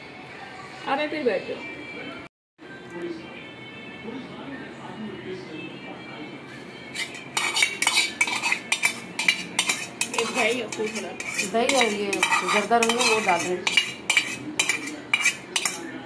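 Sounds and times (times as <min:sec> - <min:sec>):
metal spoon clinking steel bowl: 0:07.0 - 0:16.0.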